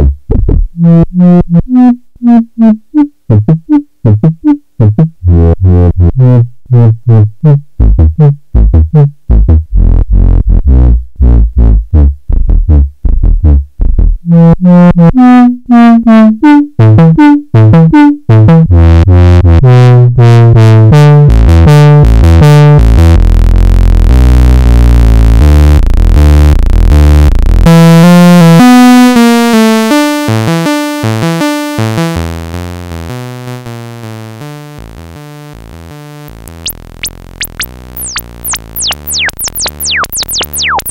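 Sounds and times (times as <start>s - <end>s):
filtered synth line: 23.1s - 40.9s.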